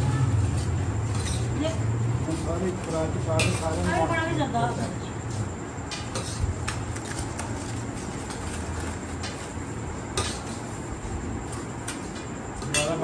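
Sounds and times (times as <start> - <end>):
steady background hum: 0.0 - 13.0
metal spoons clinking on pots: 3.3 - 3.9, 12.6 - 13.0.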